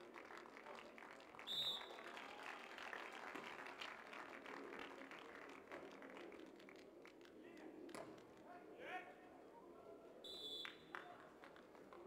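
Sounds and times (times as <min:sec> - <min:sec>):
faint crowd ambience: 0:00.0 - 0:12.0
high whistle: 0:01.5 - 0:01.9, 0:10.3 - 0:10.8.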